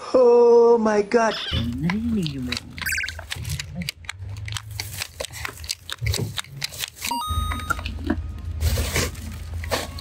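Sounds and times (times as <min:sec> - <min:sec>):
plastic wrapper crinkling: 0:01.7 - 0:07.1
paper bag rustling: 0:08.3 - 0:10.0.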